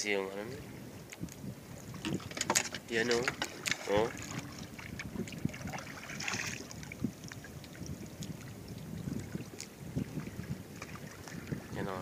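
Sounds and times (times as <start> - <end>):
rush of water: 0.0 - 12.0
water lapping against boat hull: 0.0 - 12.0
light knocks on hull: 2.0 - 4.6.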